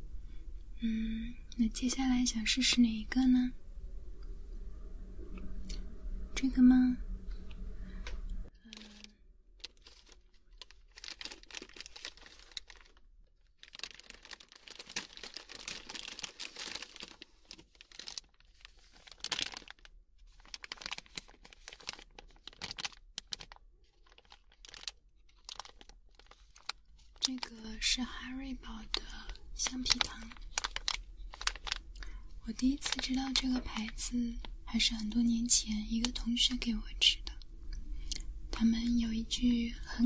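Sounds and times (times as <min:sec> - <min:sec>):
plastic sweet packet crinkling: 0:08.6 - 0:36.3.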